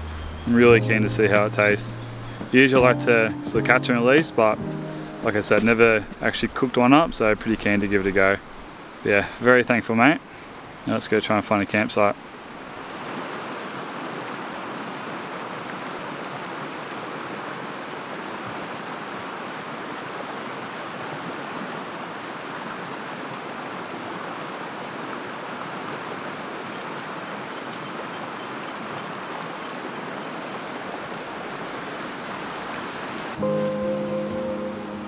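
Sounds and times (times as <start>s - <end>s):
faint high-pitched tone: 0.0s - 6.3s, 33.4s - 35.0s
river water rushing: 0.0s - 10.9s, 12.2s - 35.0s.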